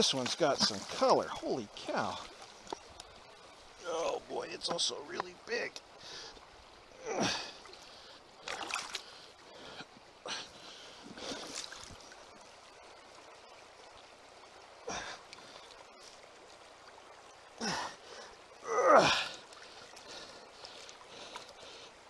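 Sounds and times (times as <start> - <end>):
stream water trickling: 0.0 - 22.0
breathy exhalation: 6.0 - 8.2, 14.8 - 15.7, 17.6 - 22.0
rocks splashing in water: 8.4 - 9.1.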